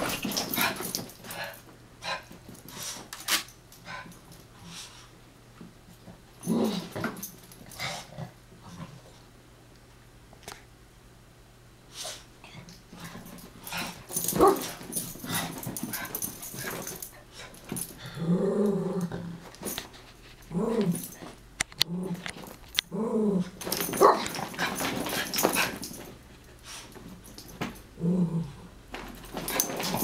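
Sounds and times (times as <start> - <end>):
dogs growling and grunting: 6.4 - 9.0, 17.7 - 19.5, 20.4 - 25.9, 27.9 - 28.8.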